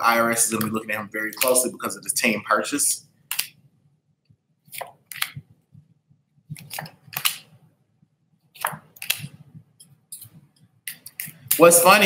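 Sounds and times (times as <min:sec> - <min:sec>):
cards being shuffled: 0:06.5 - 0:07.5, 0:08.6 - 0:09.5.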